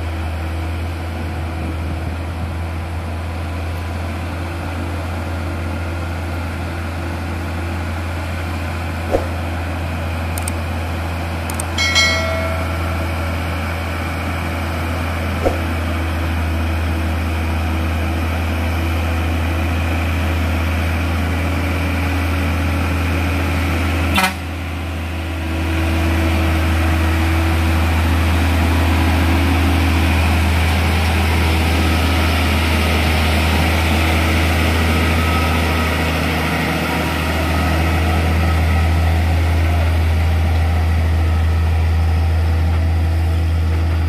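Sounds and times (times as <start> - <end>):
diesel truck engines droning: 0.0 - 44.0
sharp click: 10.4 - 10.6, 11.5 - 11.7.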